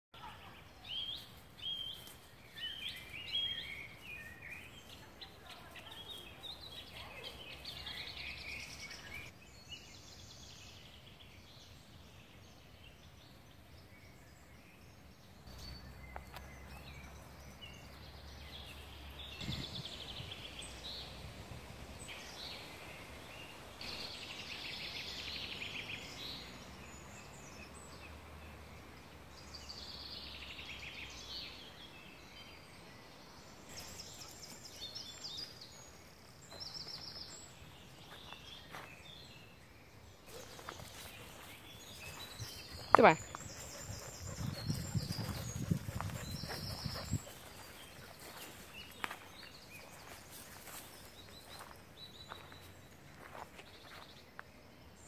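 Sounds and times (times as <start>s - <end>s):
birds chirping and trilling: 0.2s - 21.4s, 22.0s - 55.0s
outdoor background hiss: 17.3s - 45.0s.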